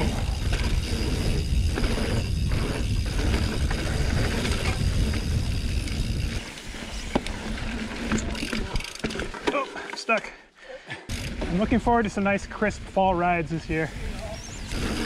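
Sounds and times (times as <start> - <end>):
wind buffeting microphone: 0.0 - 6.4
bike tyre rumble on dirt: 0.0 - 9.4, 11.1 - 15.0
bike clicks and rattles: 0.0 - 10.3, 11.1 - 13.0, 13.8 - 15.0.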